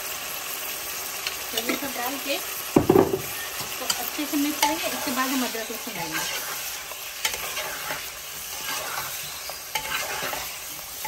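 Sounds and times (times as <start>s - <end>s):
meat and spices sizzling in oil: 0.0s - 11.0s
spoon stirring in pot: 6.0s - 11.0s.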